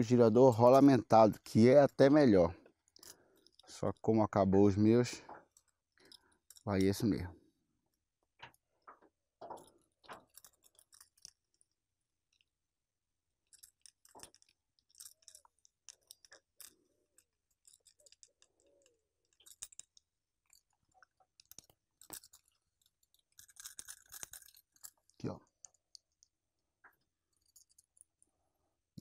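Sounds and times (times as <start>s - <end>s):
small metal clicks: 2.6s - 4.1s, 5.3s - 7.1s, 7.9s - 12.6s, 13.3s - 28.3s.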